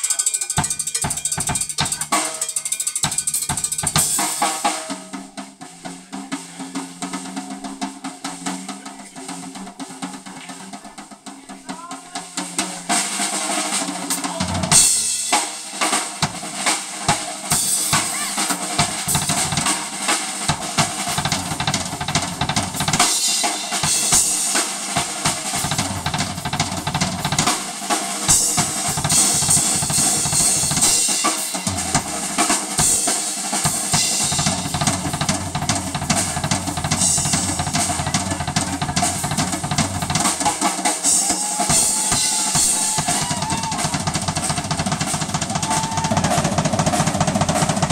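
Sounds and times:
blues band playing: 0:00.0 - 0:47.9
snare and bass drum hits: 0:12.6 - 0:47.9.

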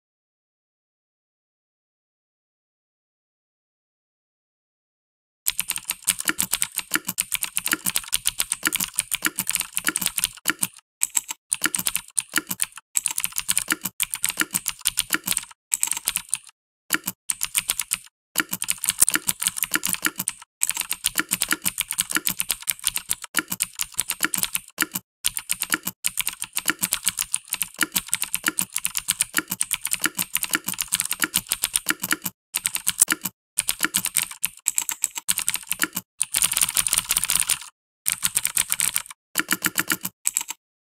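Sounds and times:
mechanical keyboard key clicks: 0:18.4 - 0:19.8.

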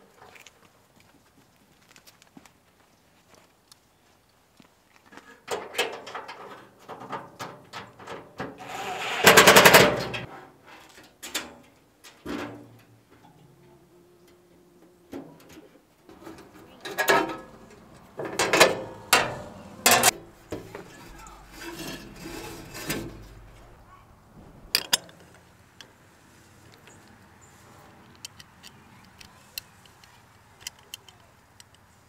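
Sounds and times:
loud rapid metal rattle: 0:08.6 - 0:10.3
metal grill parts clanking: 0:09.2 - 0:13.5, 0:15.1 - 0:23.6, 0:24.4 - 0:25.4.

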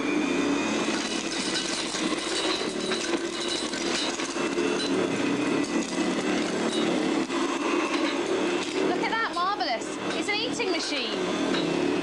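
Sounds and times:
vacuum cleaner motor hum: 0:00.0 - 0:12.0
debris clicking and rattling: 0:01.0 - 0:05.0.

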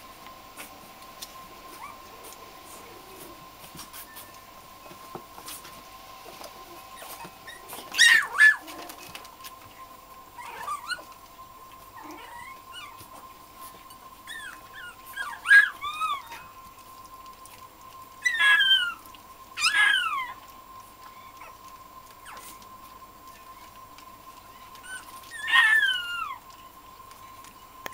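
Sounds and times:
puppies yipping and squealing: 0:01.7 - 0:16.9, 0:17.5 - 0:27.7.

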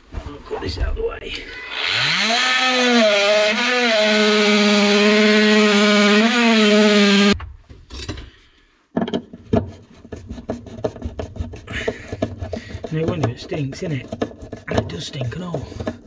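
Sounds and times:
multi-tool cutting wood: 0:01.5 - 0:07.4, 0:09.6 - 0:16.0
light knocks and scrapes: 0:09.0 - 0:16.0.

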